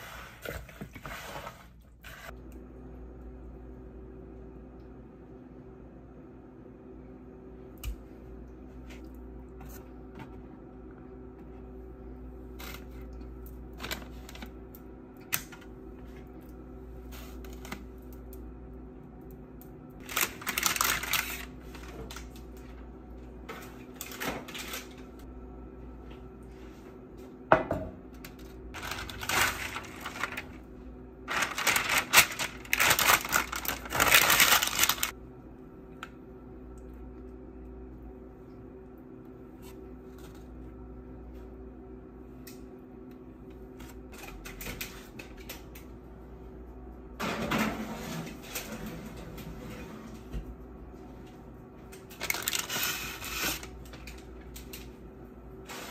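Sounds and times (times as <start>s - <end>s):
steady low hum: 0.0s - 55.9s
crackly paper rustling: 20.0s - 22.6s, 28.2s - 35.1s, 52.0s - 54.8s.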